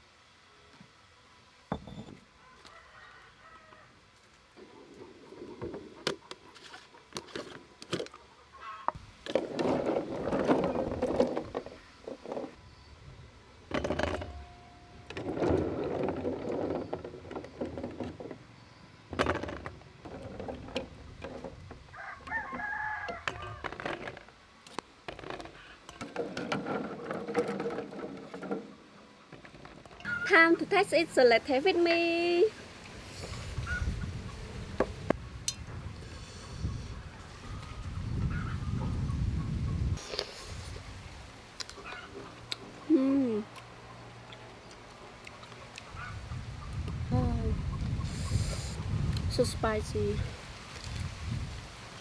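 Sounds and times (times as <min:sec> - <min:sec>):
rooster crowing: 0:02.4 - 0:04.0, 0:21.9 - 0:23.7.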